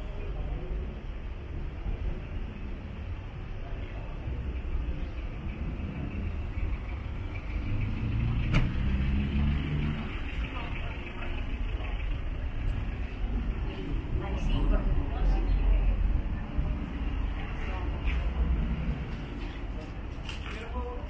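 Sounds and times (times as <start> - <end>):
vehicle engine running: 5.0 - 19.9.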